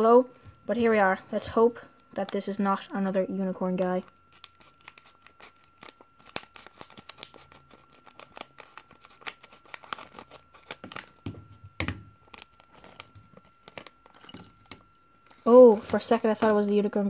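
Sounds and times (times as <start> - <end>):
plastic bag crackling: 3.9 - 11.2, 12.2 - 14.6.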